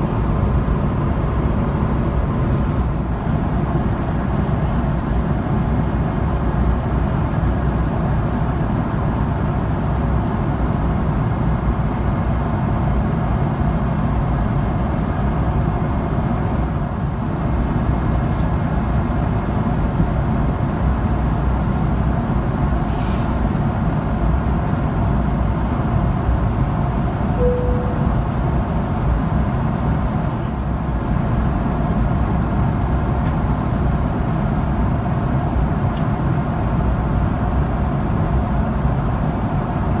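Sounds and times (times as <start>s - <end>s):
airplane cabin noise: 0.0s - 40.0s
short tone: 27.4s - 28.3s.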